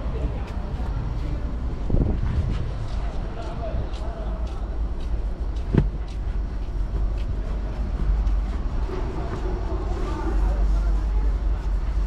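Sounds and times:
low rumble: 0.0s - 12.0s
seat cover rustling: 5.7s - 6.0s
thump: 5.7s - 6.0s.

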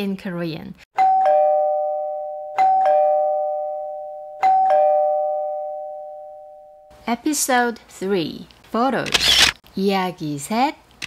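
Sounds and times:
ding-dong doorbell chime: 1.0s - 6.9s.

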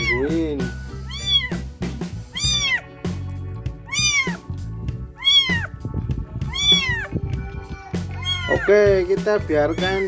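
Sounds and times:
kitten mewing: 0.0s - 0.3s, 1.0s - 1.6s, 2.3s - 2.9s, 3.8s - 4.5s, 5.2s - 5.8s, 6.4s - 8.7s, 9.5s - 10.0s.

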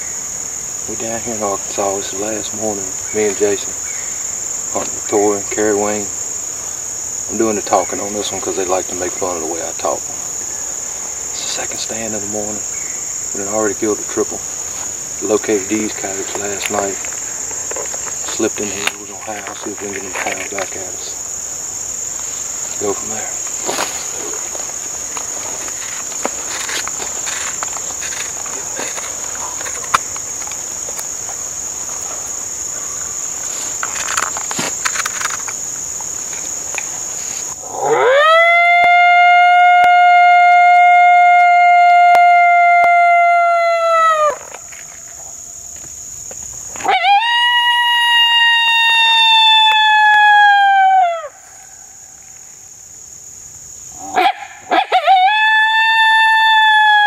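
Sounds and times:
insects buzzing: 0.0s - 57.0s
coyote howler call: 37.6s - 44.6s, 46.8s - 52.1s, 54.0s - 57.0s.

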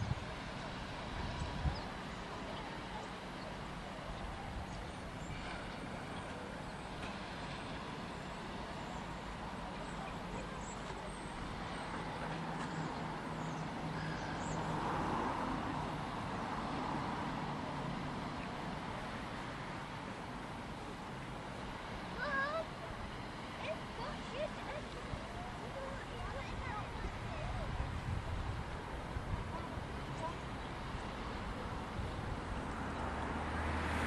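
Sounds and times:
wind: 0.0s - 34.0s.

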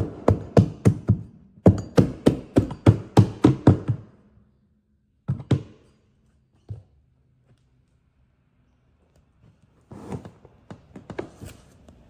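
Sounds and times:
hammer knocking carpet: 0.0s - 4.2s, 5.2s - 5.8s.

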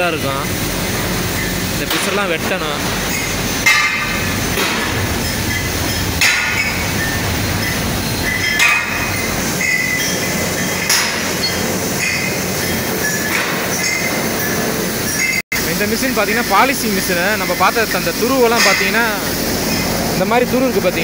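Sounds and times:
loud machinery noise: 0.0s - 21.0s
ringing metallic clanks: 1.4s - 15.4s.

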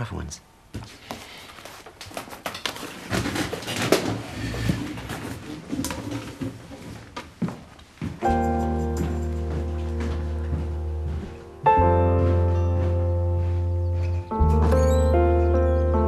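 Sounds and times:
books rustling and knocking: 0.8s - 8.2s.

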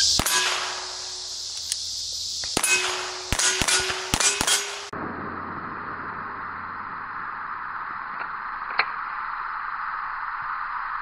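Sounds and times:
steel target clanging: 0.0s - 1.0s, 2.6s - 4.9s
gunshots: 0.2s - 1.0s, 2.6s - 5.2s.

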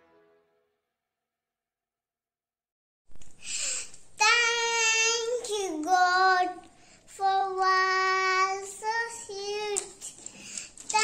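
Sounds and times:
girl singing: 4.2s - 11.0s.

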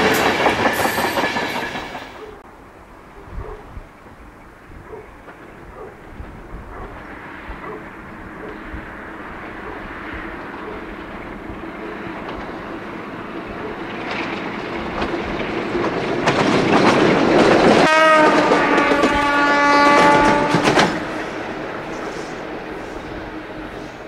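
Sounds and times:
diesel locomotive engine passing: 0.0s - 24.0s
locomotive horn blast: 17.8s - 22.2s.

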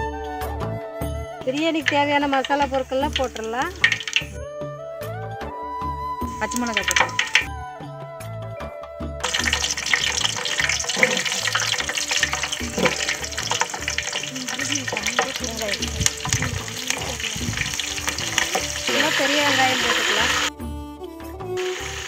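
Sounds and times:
background music beat: 0.2s - 22.0s
oil sizzling and popping: 1.5s - 4.4s, 6.3s - 7.5s, 9.2s - 20.5s, 21.6s - 22.0s.

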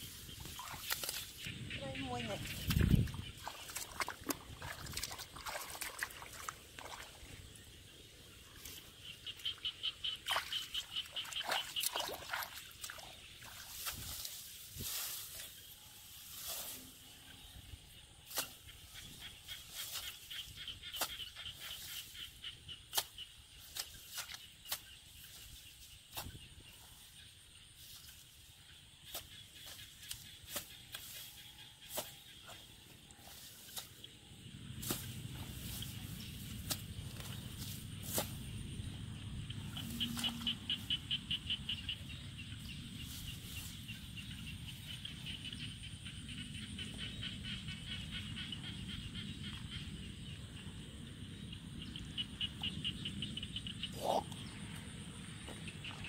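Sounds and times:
grass rustling: 0.0s - 46.0s
hoe striking mud: 34.8s - 35.2s.

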